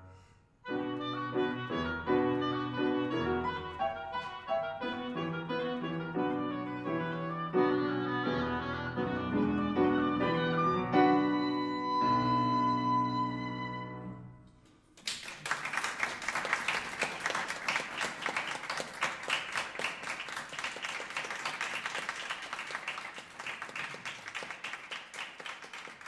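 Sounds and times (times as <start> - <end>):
oboe and piano chord: 0.0 - 14.5
audience applause: 15.0 - 26.0.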